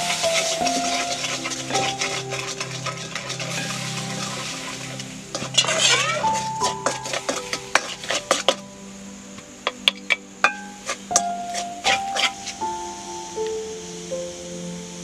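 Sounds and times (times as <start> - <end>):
spoon scraping metal pan: 0.0 - 8.6, 9.8 - 12.6.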